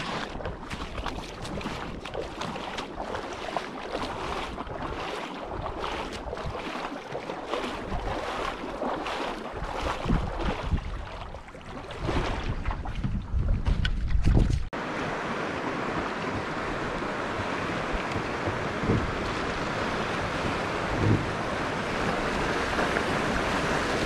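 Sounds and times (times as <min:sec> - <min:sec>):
river water rushing: 0:00.0 - 0:12.3, 0:14.8 - 0:24.0
wind buffeting microphone: 0:04.0 - 0:06.8, 0:07.6 - 0:14.7, 0:16.0 - 0:24.0.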